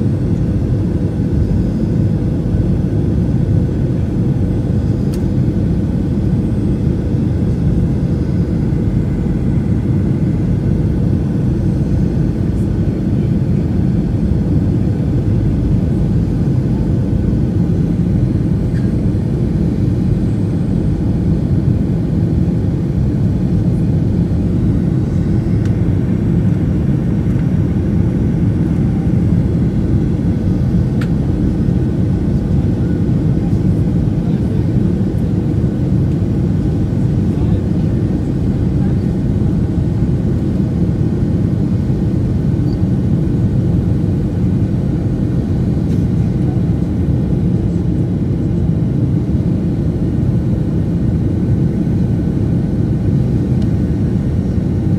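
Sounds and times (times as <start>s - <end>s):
jet airliner cabin noise: 0.0s - 54.9s.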